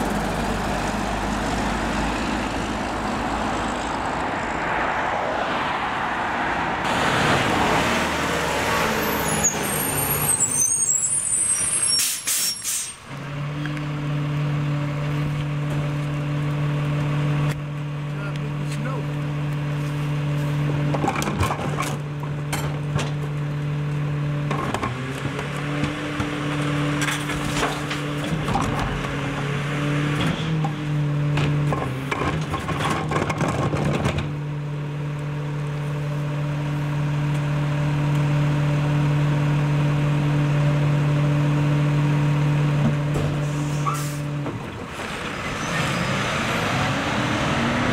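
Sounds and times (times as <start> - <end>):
diesel truck engine running: 33.3 - 47.9.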